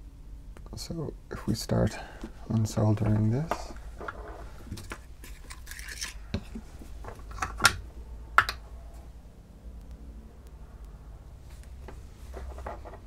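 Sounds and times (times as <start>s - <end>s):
scraping and rustling handling noise: 1.8s - 7.5s, 11.4s - 13.0s.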